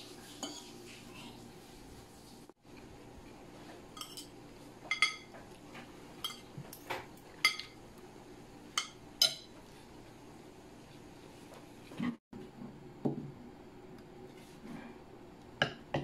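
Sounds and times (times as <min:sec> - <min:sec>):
cutlery clinking on a plate: 0:04.0 - 0:04.3, 0:04.9 - 0:05.4, 0:06.2 - 0:07.8.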